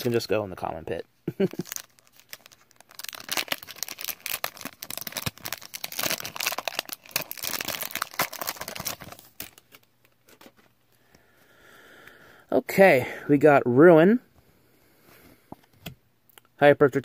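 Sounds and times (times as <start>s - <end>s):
foil wrapper crinkling: 1.4s - 10.6s.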